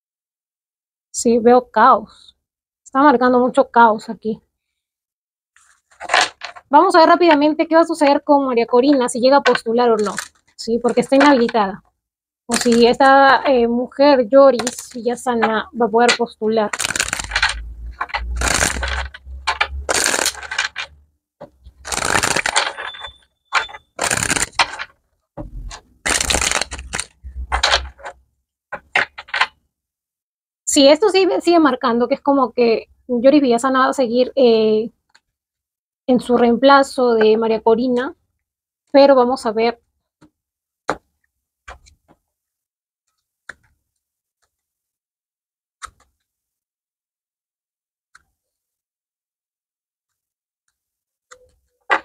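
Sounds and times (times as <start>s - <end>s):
cards being shuffled: 12.5s - 12.9s, 16.7s - 20.9s, 21.7s - 22.8s, 23.6s - 24.9s, 25.7s - 28.1s.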